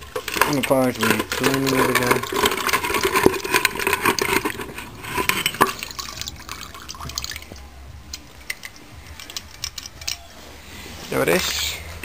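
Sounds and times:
liquid sloshing and splashing: 0.0 - 7.6.

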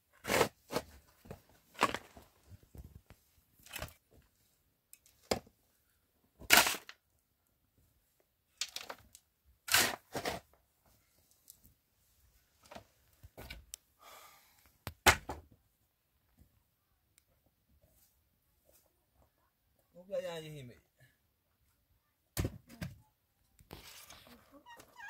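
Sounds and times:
shovel scraping dirt: 0.2 - 1.0, 6.4 - 6.9, 9.7 - 10.5.

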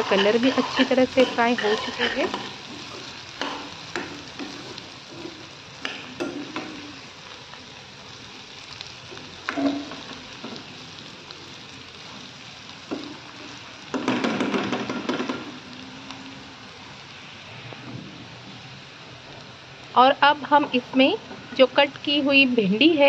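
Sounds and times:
metal spatula scraping a pan: 0.0 - 6.8
potatoes and onions sizzling in oil: 0.0 - 23.0.

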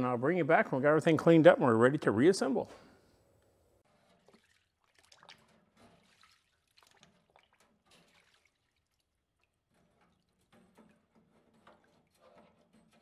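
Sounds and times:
liquid dripping and trickling: 4.1 - 10.6.

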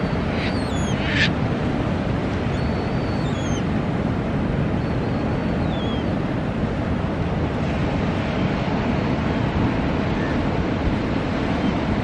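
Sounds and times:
seabirds calling: 0.0 - 1.4, 2.4 - 3.7, 4.7 - 6.2
surf washing on beach: 0.0 - 12.0.

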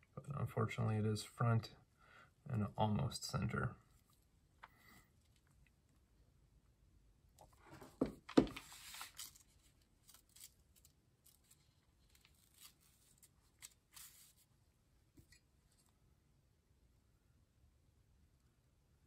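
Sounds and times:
paper rustling and crinkling: 7.6 - 14.5.

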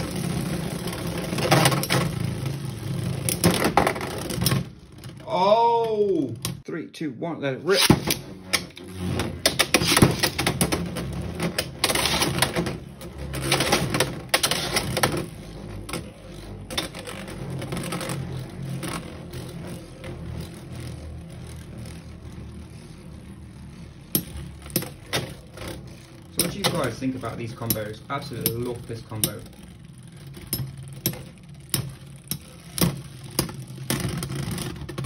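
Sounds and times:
spinning tops whirring: 0.0 - 6.6, 7.6 - 35.0
spinning tops clattering: 7.9 - 35.0
spinning tops knocking: 23.2 - 35.0.

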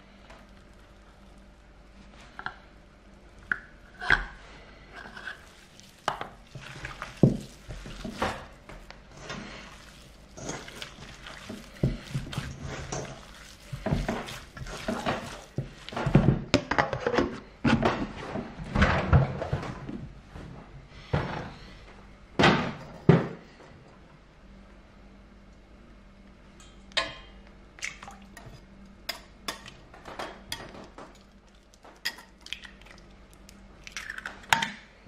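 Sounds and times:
wet squishing of kneaded meat: 0.0 - 2.5, 3.1 - 16.4, 30.8 - 34.5.

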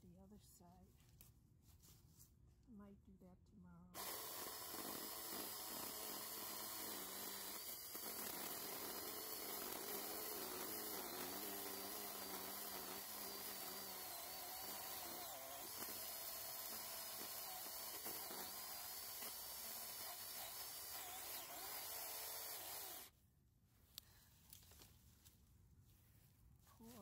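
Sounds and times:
electric chainsaw whine: 4.0 - 23.1.

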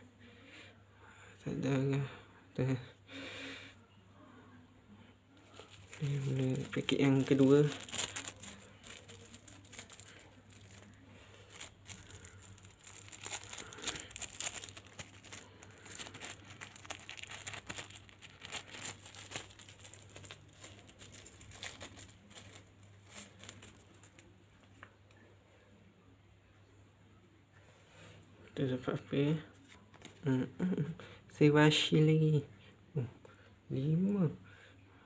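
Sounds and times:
faint low hum: 0.0 - 35.0
plastic sachet crinkling and tearing: 5.4 - 24.9.

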